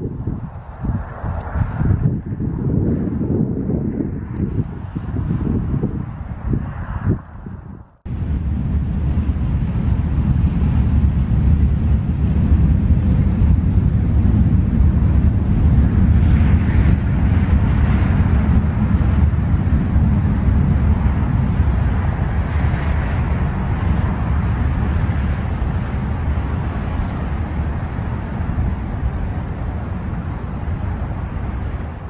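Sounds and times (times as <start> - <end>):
distant highway traffic drone: 0.0 - 32.0
wind rumbling on microphone: 0.0 - 32.0.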